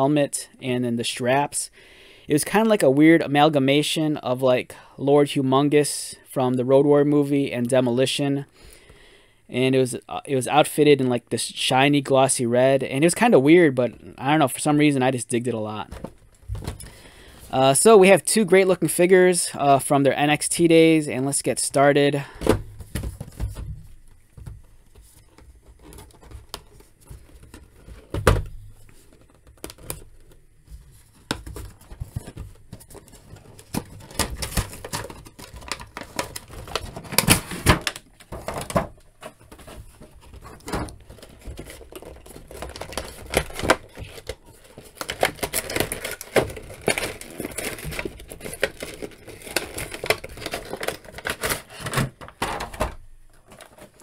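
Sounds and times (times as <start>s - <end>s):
packaging crinkling and clicking: 31.2s - 54.0s.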